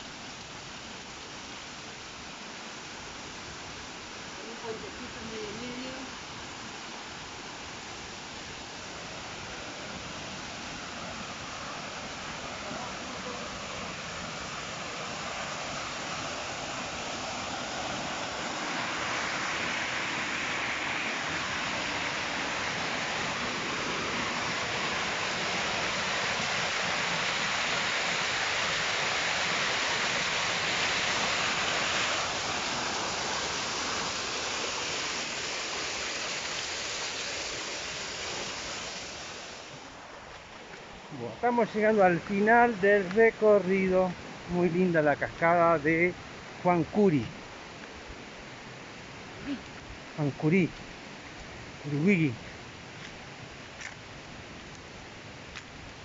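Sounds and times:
waterfall splashing into stream: 0:08.8 - 0:40.9.

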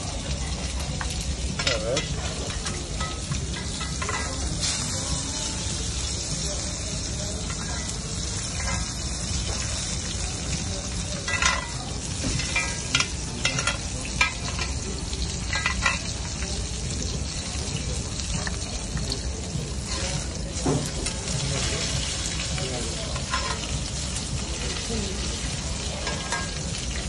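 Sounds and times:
steak sizzling in a pan: 0:00.0 - 0:27.0
metal clinks against pan: 0:11.2 - 0:14.8, 0:15.5 - 0:16.1, 0:26.0 - 0:26.6.

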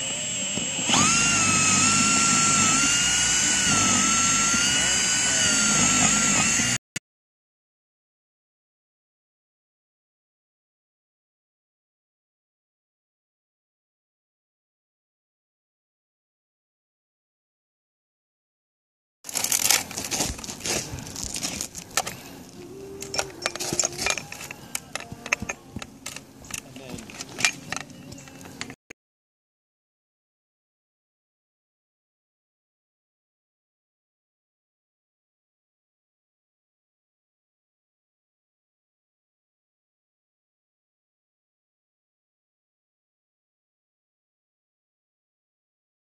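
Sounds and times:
cordless drill whining: 0:00.0 - 0:06.8, 0:19.3 - 0:26.2
metal plate scraping and crinkling: 0:19.3 - 0:22.3.

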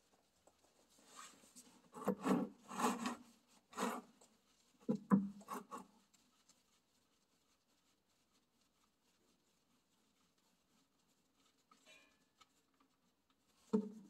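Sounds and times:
glove scraping metal pan: 0:01.1 - 0:04.3.

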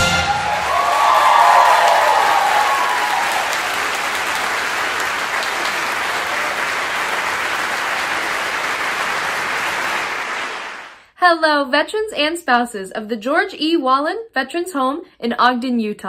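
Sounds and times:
large audience applauding: 0:00.0 - 0:11.0.

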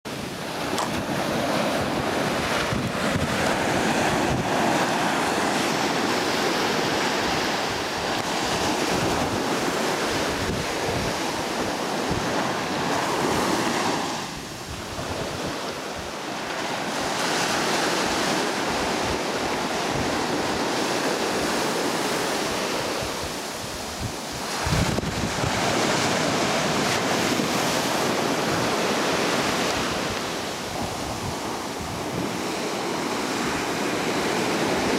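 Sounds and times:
ocean surf breaking: 0:00.1 - 0:34.9
wind buffeting the microphone: 0:00.1 - 0:34.9.

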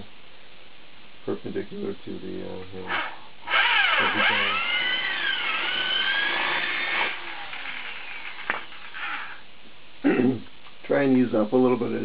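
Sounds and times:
electric drill boring wood: 0:02.9 - 0:09.4.

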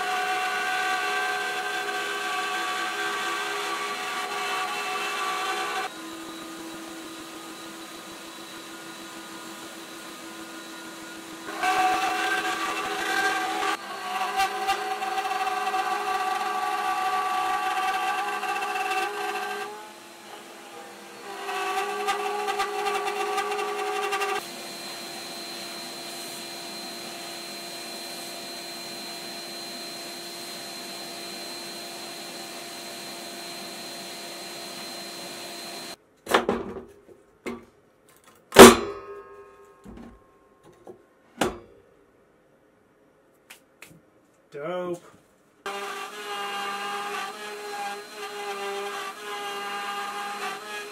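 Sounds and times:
cnc router cutting wood: 0:00.0 - 0:36.0, 0:45.7 - 0:50.9
dust collection vacuum running: 0:01.0 - 0:15.0, 0:17.6 - 0:36.0.

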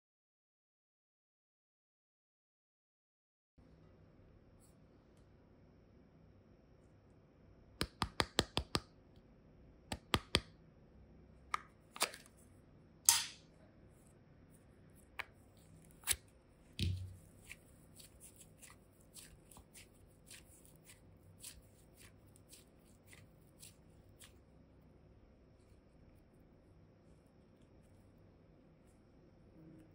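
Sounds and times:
modelling clay squeezed by hand: 0:14.5 - 0:24.6.

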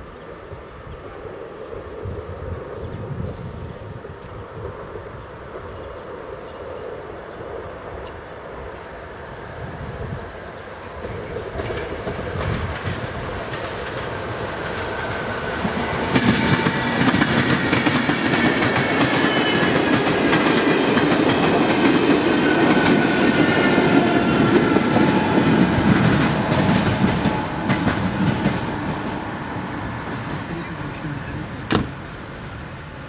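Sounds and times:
train wheels clacking over rails: 0:10.9 - 0:31.9.

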